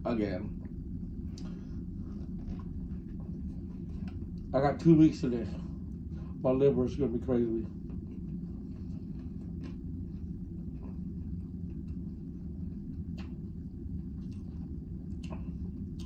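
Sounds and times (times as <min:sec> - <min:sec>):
low machinery rumble: 0:00.0 - 0:16.0.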